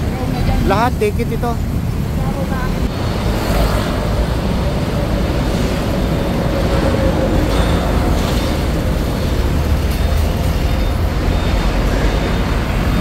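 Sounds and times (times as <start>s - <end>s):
diesel trucks rumbling: 0.0s - 13.0s
road traffic noise: 0.0s - 13.0s.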